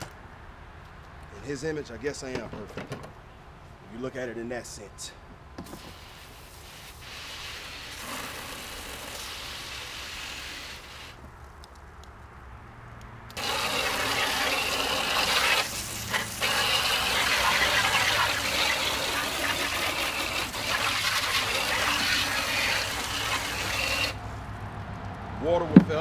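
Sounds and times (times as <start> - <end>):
hose spraying water on plastic: 5.6 - 11.3, 13.3 - 24.3.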